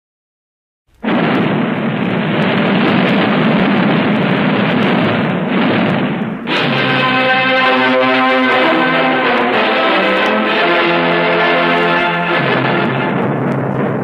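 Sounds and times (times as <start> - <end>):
loud steady roar: 1.3 - 14.0
dramatic music with brass tones: 6.5 - 13.8.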